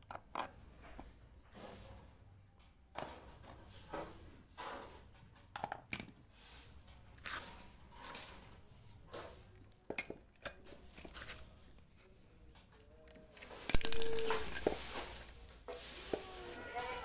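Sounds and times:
chainsaw chain clicking and scraping: 12.4s - 17.0s.

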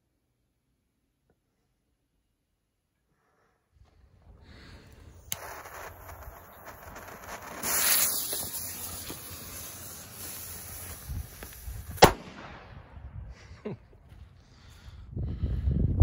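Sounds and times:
fuse hissing and sparking: 4.8s - 12.1s.

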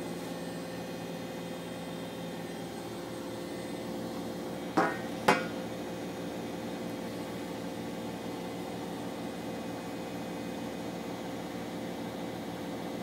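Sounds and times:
washing machine spinning: 0.0s - 13.0s
sharp knocks: 4.8s - 5.5s.

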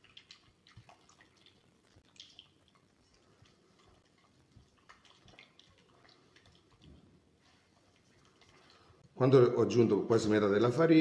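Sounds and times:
hands mixing dough in glass bowl: 0.0s - 9.3s.

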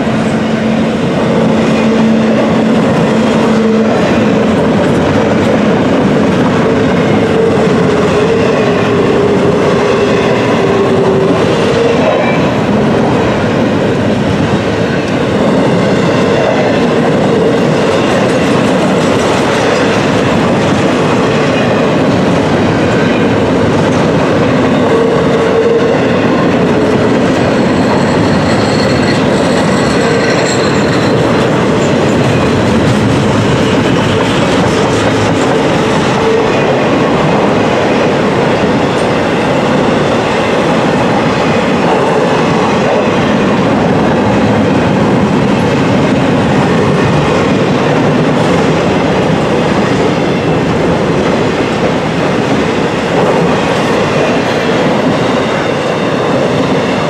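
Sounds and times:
freight train rumbling past: 0.0s - 57.0s
wheel squeal: 27.4s - 32.2s.

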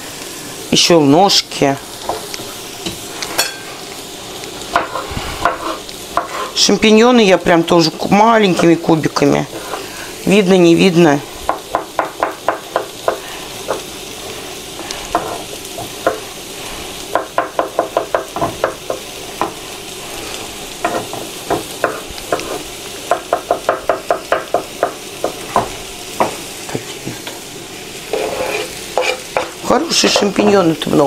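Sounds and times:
food sizzling in a pan: 0.0s - 31.0s.

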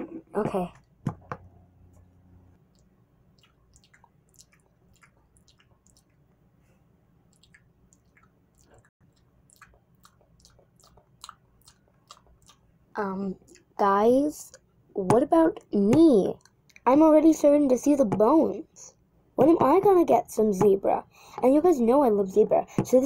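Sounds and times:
faint eating clicks and smacks: 2.6s - 12.8s, 13.4s - 13.9s, 16.3s - 16.9s.

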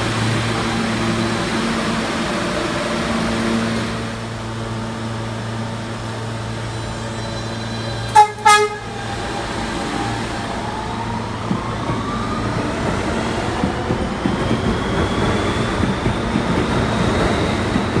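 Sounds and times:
subway train humming: 0.0s - 18.0s
train horn blasts: 8.1s - 9.0s.

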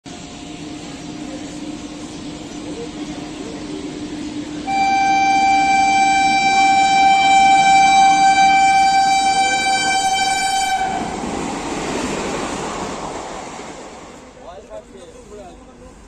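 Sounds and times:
train running noise: 0.0s - 16.0s
train horn long blast: 4.6s - 11.2s.

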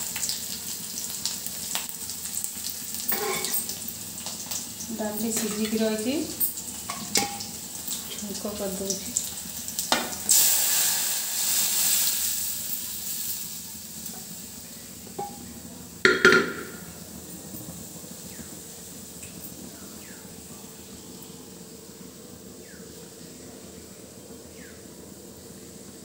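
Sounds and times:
liquid sizzling in hot oil: 0.0s - 22.0s
sharp knocks: 16.1s - 16.9s.

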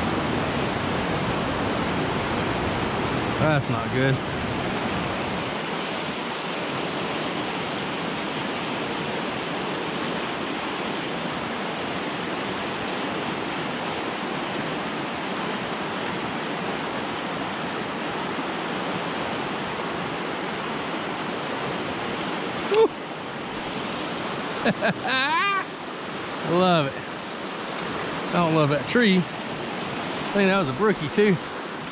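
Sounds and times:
creek water rushing over rocks: 0.0s - 31.9s.

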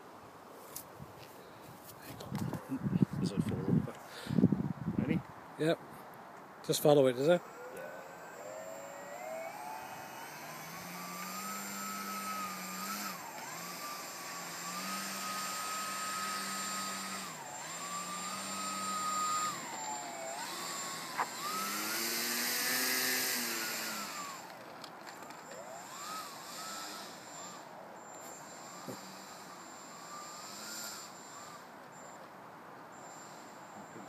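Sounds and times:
model plane motor whining: 7.4s - 32.3s.

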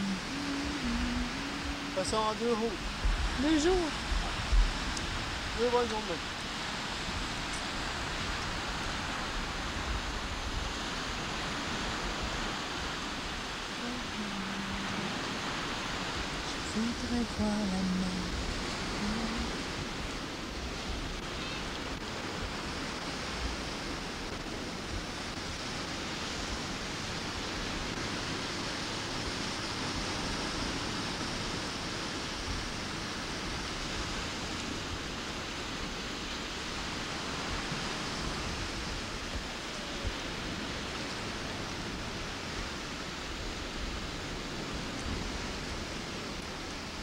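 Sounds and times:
wind rushing: 0.0s - 13.6s
small waves breaking on sand: 0.0s - 47.0s
wind buffeting microphone: 0.0s - 47.0s.

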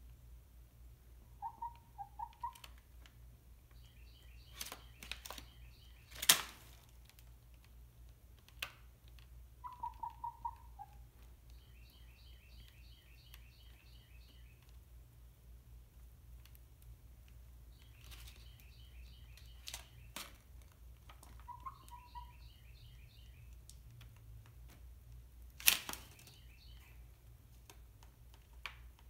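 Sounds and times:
chicken clucking: 1.4s - 2.6s, 9.6s - 11.0s, 21.3s - 22.4s
high chirps: 9.6s - 14.6s, 21.4s - 23.5s.

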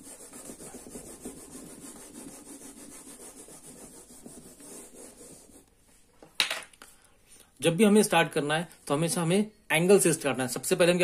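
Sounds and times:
duster rubbing on whiteboard: 0.0s - 5.7s.

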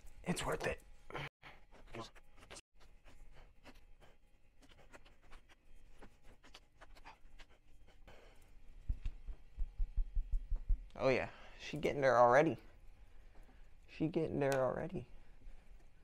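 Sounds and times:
dull low thumps: 8.8s - 11.0s.

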